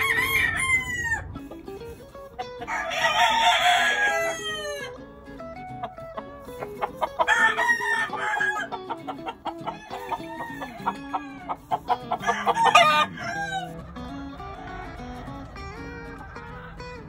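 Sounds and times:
rooster crowing: 0:00.0 - 0:01.4, 0:02.6 - 0:05.0, 0:07.1 - 0:16.8
background music: 0:00.0 - 0:17.0.

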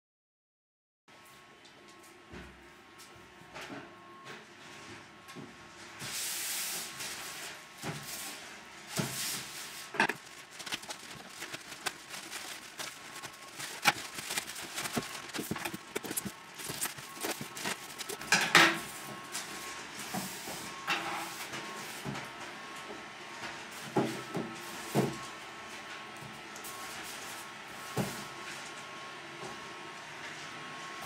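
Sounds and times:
plastic packaging rustling: 0:08.9 - 0:18.5
scissors cutting plastic: 0:09.9 - 0:18.3.

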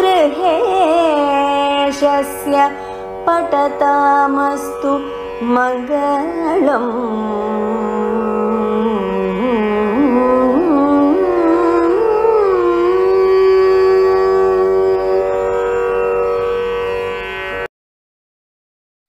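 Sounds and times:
person singing a long note: 0:00.0 - 0:15.9.

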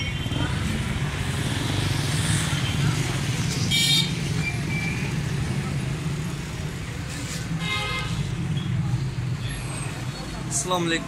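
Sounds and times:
low rumble of street traffic: 0:00.0 - 0:11.0.

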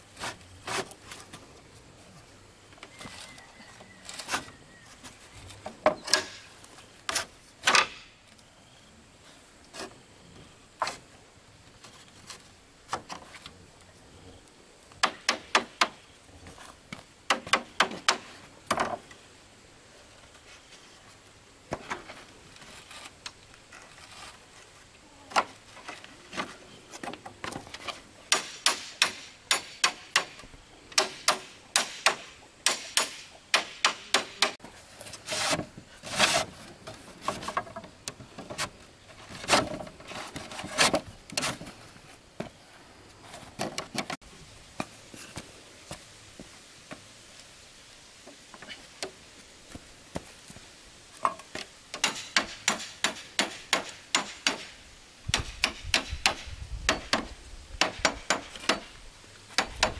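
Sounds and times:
hand tool striking wood: 0:15.0 - 0:16.0, 0:28.3 - 0:30.4, 0:31.0 - 0:34.6, 0:51.2 - 0:54.7, 0:55.3 - 0:58.9, 0:59.5 - 0:59.9.

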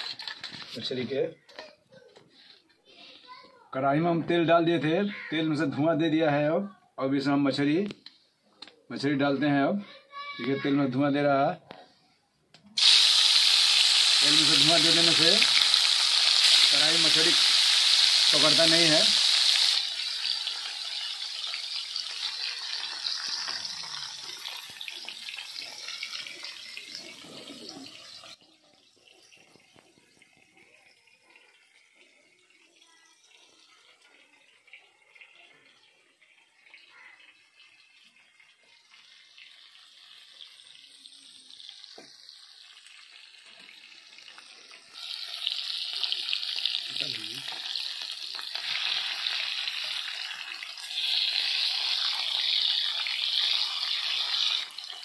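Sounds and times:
faint background noise: 0:00.0 - 0:55.0
fish sizzling in hot oil: 0:12.8 - 0:55.0.

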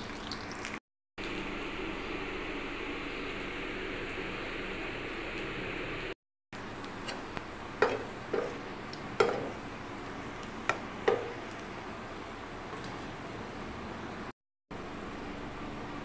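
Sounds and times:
oil frying hiss: 0:00.0 - 0:01.5.

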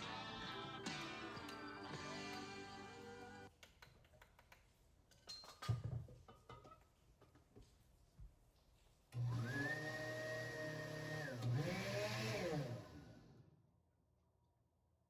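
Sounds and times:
blender motor whining: 0:09.2 - 0:13.5.

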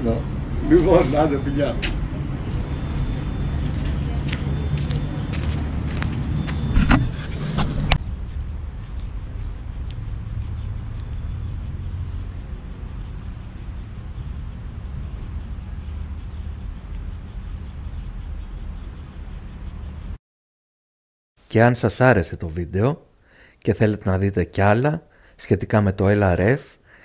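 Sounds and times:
insects chirping: 0:00.0 - 0:20.2
low rumble of traffic: 0:00.0 - 0:20.2.

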